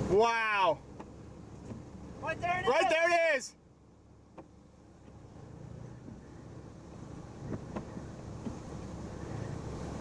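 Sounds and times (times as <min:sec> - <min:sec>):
wind buffeting microphone: 0:06.0 - 0:10.0.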